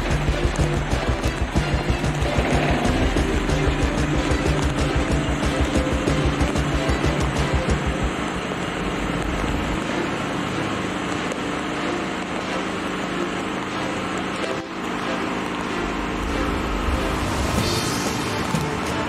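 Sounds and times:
river rushing roar: 0.0s - 19.0s.

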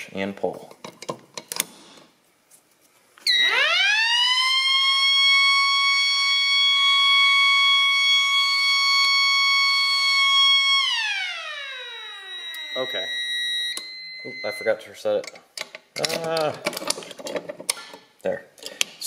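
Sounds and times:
tornado siren wailing: 3.3s - 14.8s.

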